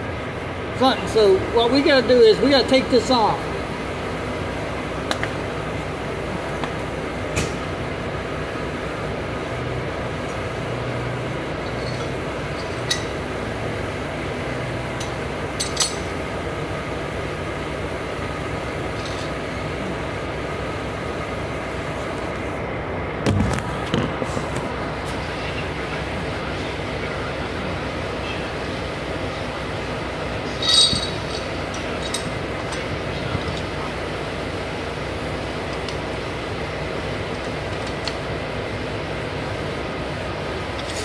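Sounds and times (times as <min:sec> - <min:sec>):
trucks idling: 0:00.0 - 0:41.0
metallic clinks: 0:11.6 - 0:13.2, 0:15.0 - 0:16.1, 0:30.5 - 0:32.9.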